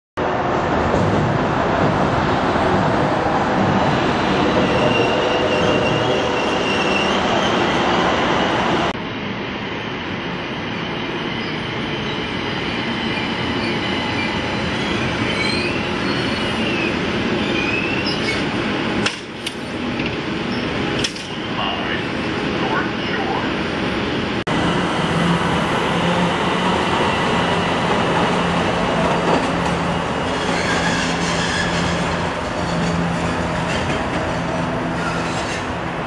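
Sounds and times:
wheels squealing on rails: 3.8s - 8.9s, 10.6s - 18.5s, 29.0s - 35.9s
light rail car running: 24.5s - 36.0s.

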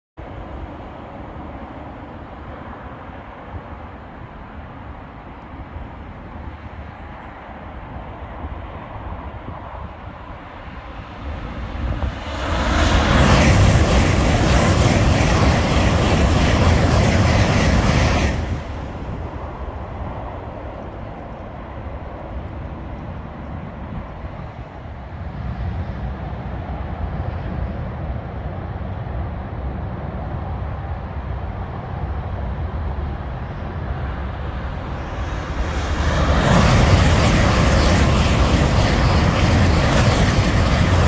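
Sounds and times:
high-speed train passing: 0.2s - 41.0s
motorway traffic hum: 0.2s - 41.0s.

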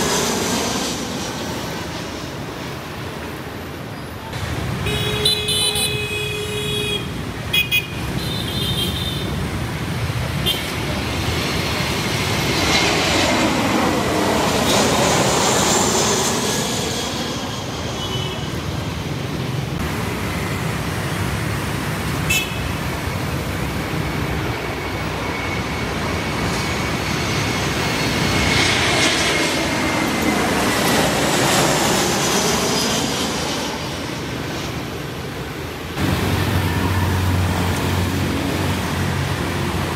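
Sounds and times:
jet airliner passing overhead: 0.0s - 39.9s
street traffic: 0.0s - 39.9s
car horn toot: 4.9s - 9.2s.

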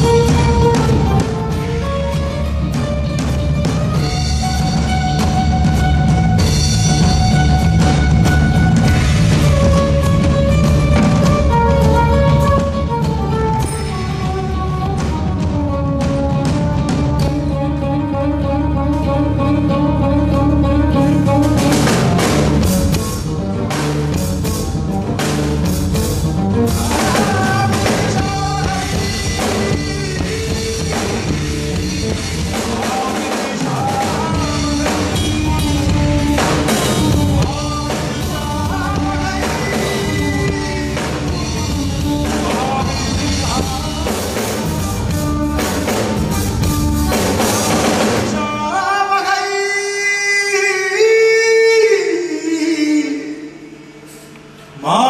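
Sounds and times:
bass guitar: 0.0s - 48.9s
electric guitar: 0.0s - 48.9s
drums: 0.0s - 55.0s
man singing: 26.7s - 45.7s, 47.6s - 54.0s, 54.8s - 55.0s.

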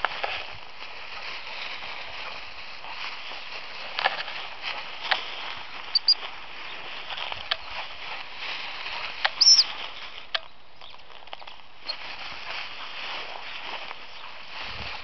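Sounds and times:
rustling through dry grass: 0.0s - 15.0s
twigs snapping: 3.8s - 7.9s.

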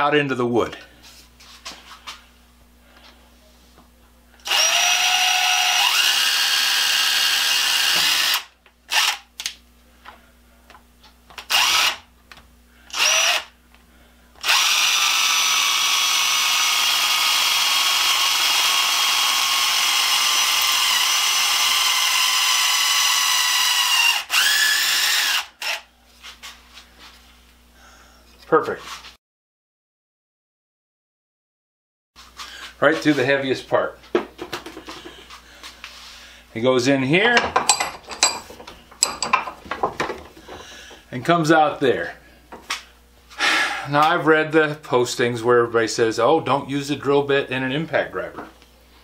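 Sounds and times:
impact driver drilling wood: 4.4s - 9.3s, 11.4s - 12.1s, 12.9s - 13.5s, 14.4s - 25.9s.

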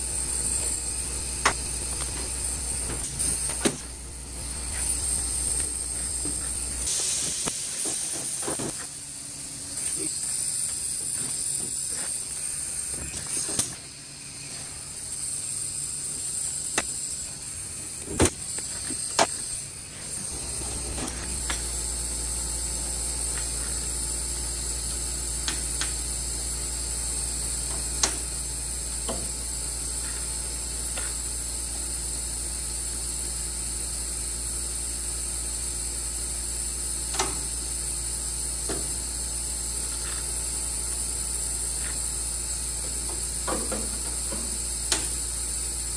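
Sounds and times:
steady air hiss: 0.0s - 26.7s.

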